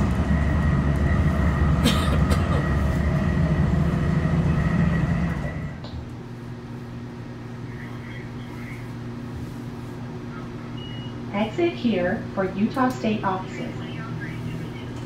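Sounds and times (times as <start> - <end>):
train wheels rumbling: 0.0 - 5.9
faint steady whine: 0.0 - 15.0
quiet steady hum: 5.8 - 15.0.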